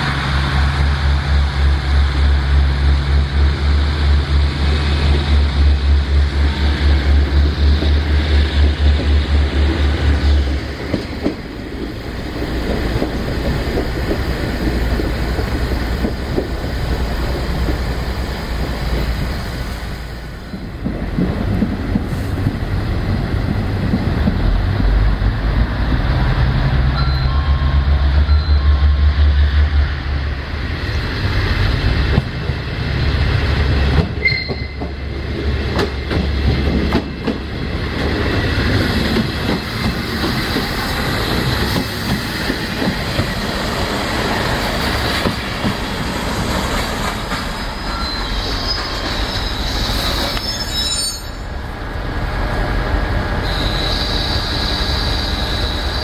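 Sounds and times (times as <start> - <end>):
wheels squealing on rails: 33.0 - 35.1, 46.6 - 51.7, 53.4 - 56.0.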